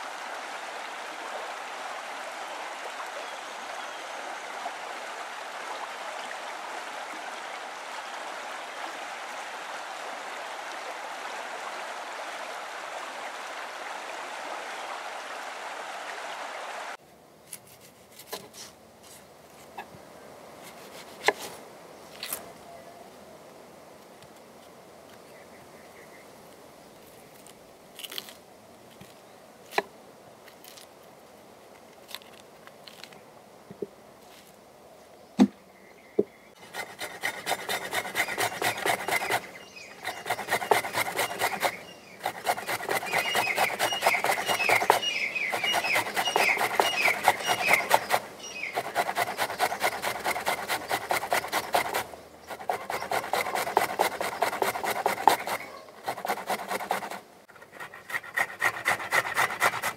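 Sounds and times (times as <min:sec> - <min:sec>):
onion rasping on steel grater: 0:36.6 - 0:57.2.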